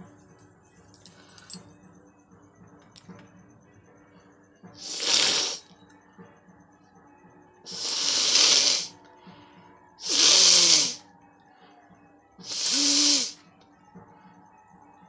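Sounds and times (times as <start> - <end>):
woman blowing her nose: 4.8 - 5.6, 7.7 - 8.9, 10.0 - 11.0, 12.5 - 13.4.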